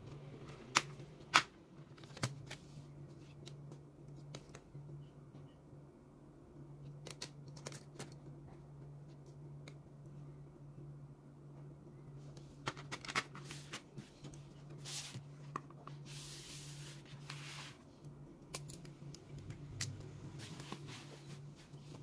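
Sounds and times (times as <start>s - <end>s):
low steady hum: 0.0s - 22.0s
paper rustling and sliding: 13.3s - 17.9s, 20.3s - 22.0s.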